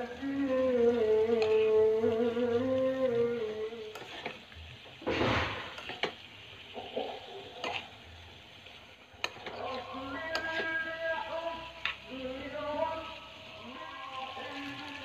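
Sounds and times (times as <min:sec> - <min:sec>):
light sizzle: 0:00.0 - 0:15.0
metal spoon scraping a frying pan: 0:03.8 - 0:08.0, 0:09.2 - 0:10.9.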